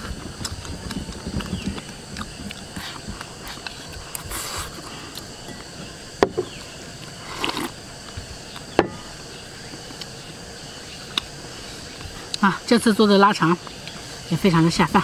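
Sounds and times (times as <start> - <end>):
insects humming: 0.0 - 15.0
chewing: 0.4 - 5.7.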